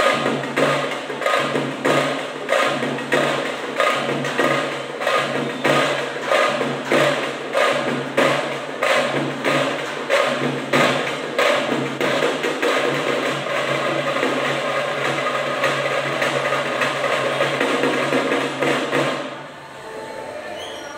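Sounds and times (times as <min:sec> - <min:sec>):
drum beaten with sticks: 0:00.0 - 0:19.5.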